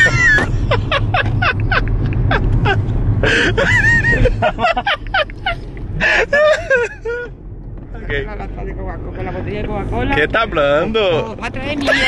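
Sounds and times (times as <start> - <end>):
people laughing: 0.0 - 7.3
car cabin rumble: 0.0 - 12.0.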